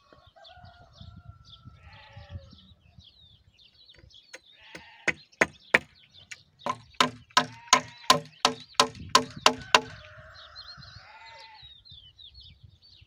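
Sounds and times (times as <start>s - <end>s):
small birds chirping: 0.0s - 13.0s
sheep bleating: 4.6s - 5.1s
hammer driving nail into wood: 4.8s - 5.9s, 6.7s - 10.0s.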